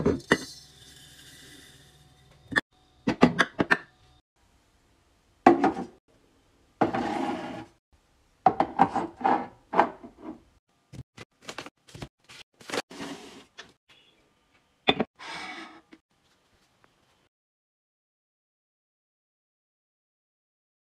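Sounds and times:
jars scraping on shelf: 0:06.8 - 0:07.8, 0:08.6 - 0:10.4, 0:12.8 - 0:13.6.

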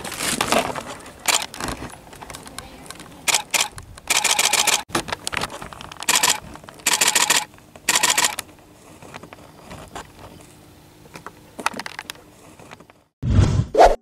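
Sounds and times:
camera shutter clicks: 0:01.3 - 0:01.5, 0:03.3 - 0:04.8, 0:06.0 - 0:08.4.

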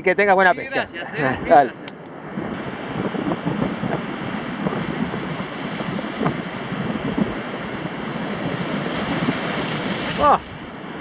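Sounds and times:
wind buffeting microphone: 0:00.0 - 0:11.0
surf breaking against rocks: 0:02.3 - 0:11.0.

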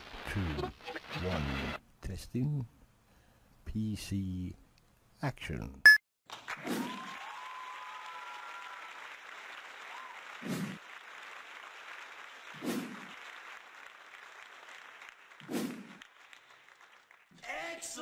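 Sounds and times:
applause: 0:06.3 - 0:18.0.

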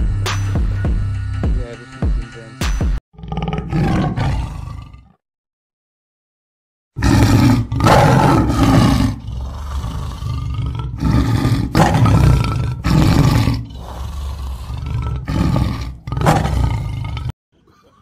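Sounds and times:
tiger roaring: 0:03.2 - 0:05.2, 0:07.0 - 0:17.4.

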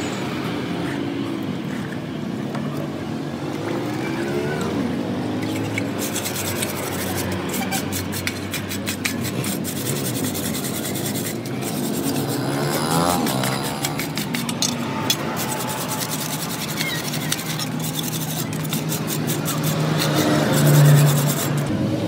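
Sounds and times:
hand scrubbing in water: 0:05.4 - 0:21.7.

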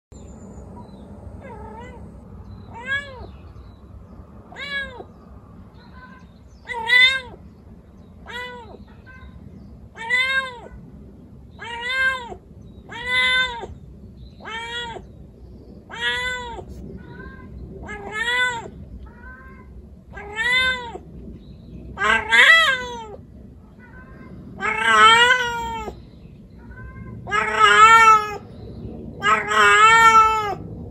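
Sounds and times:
cat meowing: 0:01.4 - 0:02.1, 0:02.7 - 0:03.4, 0:04.5 - 0:05.2, 0:05.8 - 0:07.4, 0:08.2 - 0:10.8, 0:11.6 - 0:13.8, 0:14.4 - 0:15.1, 0:15.9 - 0:21.0, 0:22.0 - 0:26.0, 0:26.6 - 0:28.4, 0:29.2 - 0:30.7.

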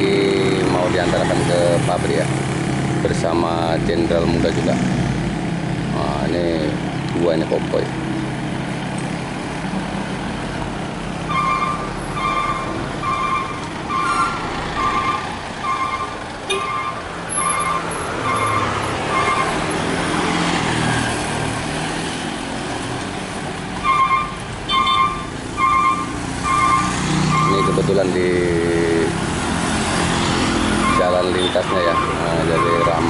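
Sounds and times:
diesel engine running: 0:00.0 - 0:33.0
vehicle passing: 0:00.0 - 0:33.0
truck reversing alarm beeping: 0:11.2 - 0:19.8, 0:23.8 - 0:28.1, 0:30.7 - 0:33.0.

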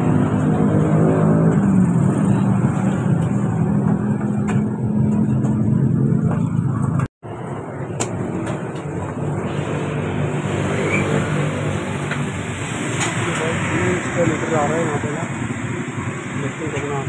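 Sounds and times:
vehicle engine running: 0:00.0 - 0:10.7.

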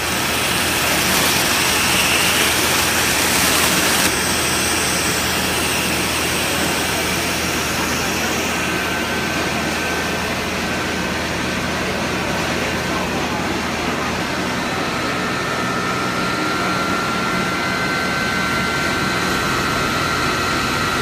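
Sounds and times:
air hissing from pipe: 0:00.0 - 0:09.2
air compressor humming: 0:00.0 - 0:21.0.

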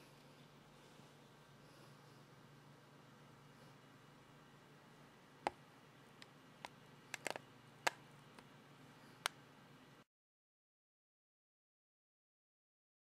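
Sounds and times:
sharp small clicks: 0:06.2 - 0:08.5.

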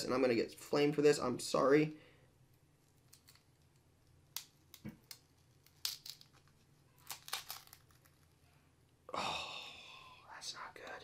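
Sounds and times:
cardboard tearing crinkles: 0:07.0 - 0:08.2.

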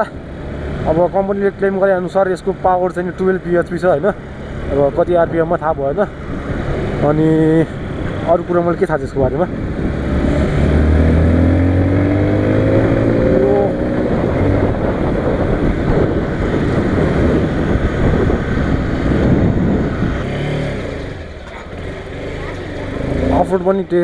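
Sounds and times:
wind rushing over microphone: 0:04.7 - 0:21.4
dirt bike engine revving: 0:09.8 - 0:14.9, 0:18.4 - 0:23.9.

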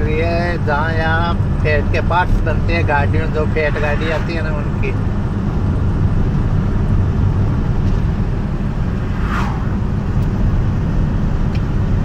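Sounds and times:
engine and road rumble in cab: 0:00.0 - 0:12.0.

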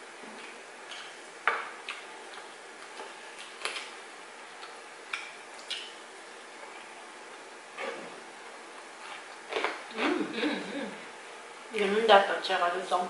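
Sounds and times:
chewing mouth smacks and clicks: 0:04.6 - 0:06.0.

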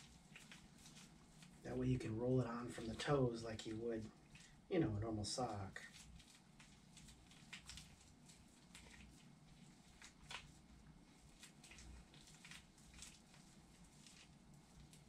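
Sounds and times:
gloved hands rustling cast sock: 0:00.0 - 0:15.0.

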